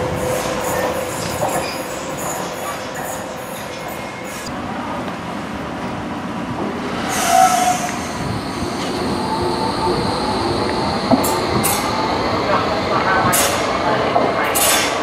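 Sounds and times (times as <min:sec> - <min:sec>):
train running on rails: 0:00.0 - 0:15.0
train wheel squeal: 0:00.2 - 0:04.5, 0:07.0 - 0:08.9.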